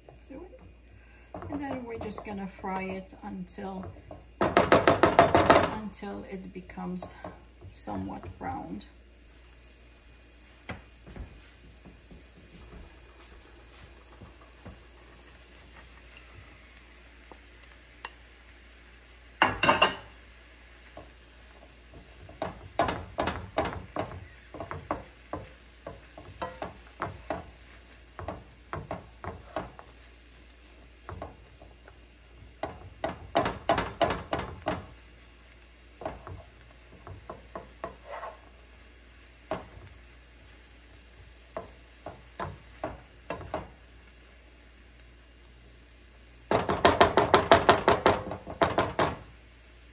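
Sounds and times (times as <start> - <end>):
onions sizzling in a frying pan: 0.0 - 49.9
wooden spatula scraping pan: 21.5 - 30.1, 36.0 - 38.7.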